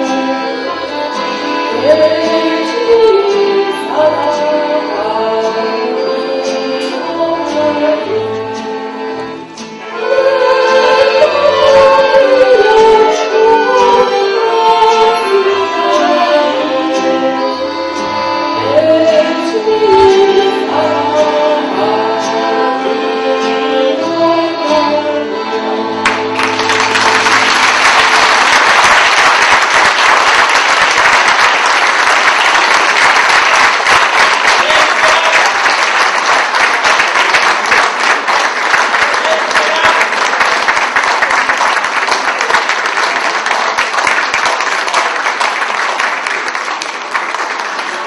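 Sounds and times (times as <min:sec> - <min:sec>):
accordion: 0:00.0 - 0:48.0
woman singing: 0:01.7 - 0:08.7, 0:10.0 - 0:17.5, 0:18.6 - 0:25.3
audience applause: 0:26.0 - 0:48.0.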